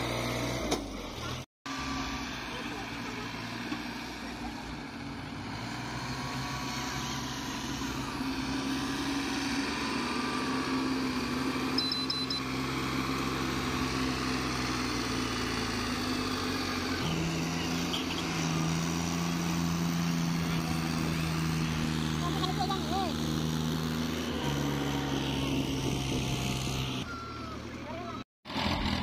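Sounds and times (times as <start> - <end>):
tractor diesel engines running: 0.0 - 29.0
short high beeps: 11.8 - 12.4.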